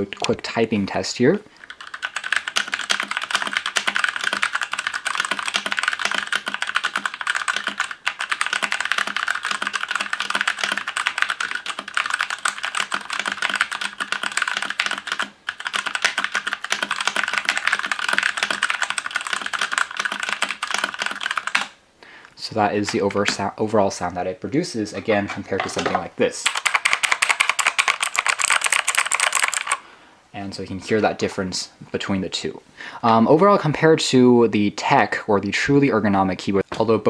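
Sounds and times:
fast typing on mechanical keyboard: 0:01.6 - 0:21.8, 0:26.4 - 0:29.8.

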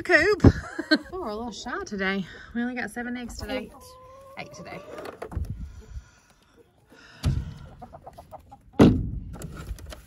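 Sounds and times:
hens clucking: 0:02.9 - 0:08.9.

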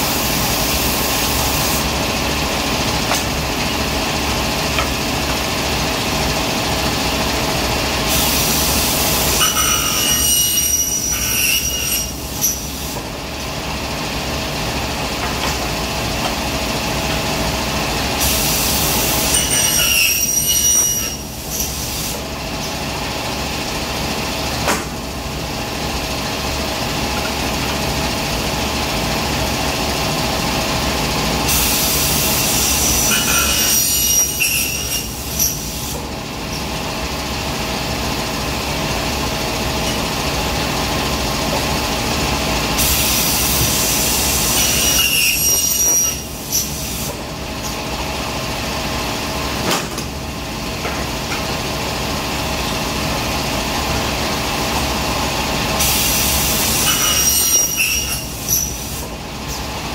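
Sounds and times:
saw blade squealing through metal: 0:09.4 - 0:12.7, 0:19.2 - 0:21.7, 0:32.6 - 0:35.6, 0:44.5 - 0:46.7, 0:56.8 - 0:58.8.

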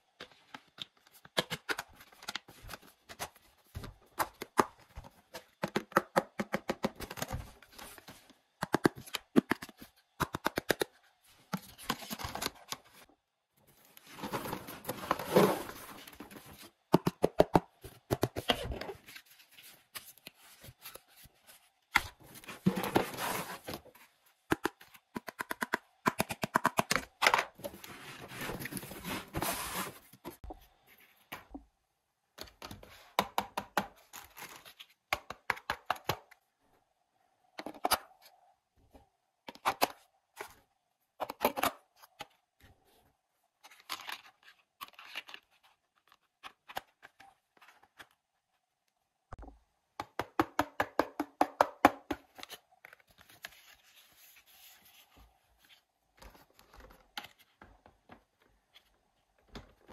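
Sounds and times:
plastic scraping and rubbing: 0:14.0 - 0:16.7, 0:22.2 - 0:24.0
plastic parts clicking and knocking: 0:24.5 - 0:27.8.

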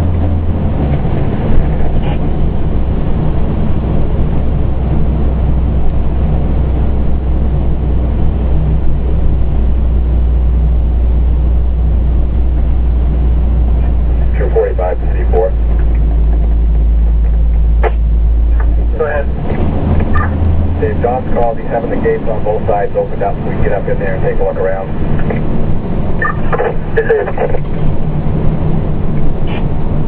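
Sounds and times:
fire engine diesel drone: 0:00.0 - 0:30.0.

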